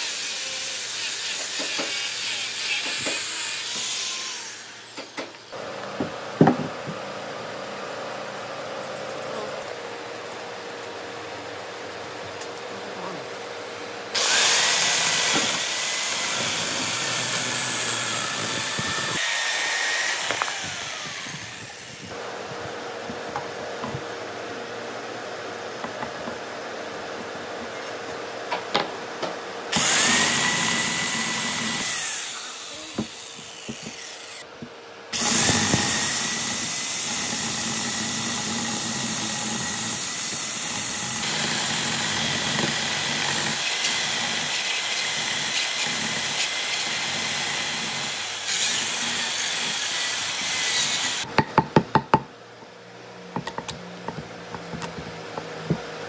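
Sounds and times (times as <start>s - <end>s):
chainsaw cutting log: 14.2s - 22.1s, 29.7s - 34.4s, 35.2s - 51.3s.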